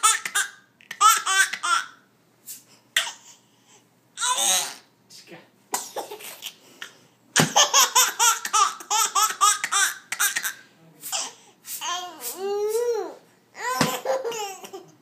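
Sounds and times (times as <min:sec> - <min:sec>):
baby laughing: 0:00.0 - 0:02.0, 0:04.2 - 0:04.9, 0:07.4 - 0:15.0
baby squealing: 0:04.2 - 0:04.9.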